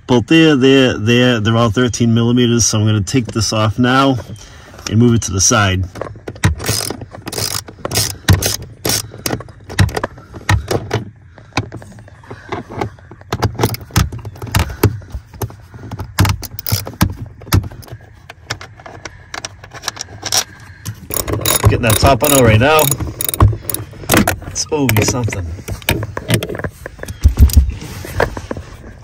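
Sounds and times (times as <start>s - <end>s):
socket ratchet clicking: 6.5s - 9.3s, 16.2s - 16.9s, 21.1s - 24.4s.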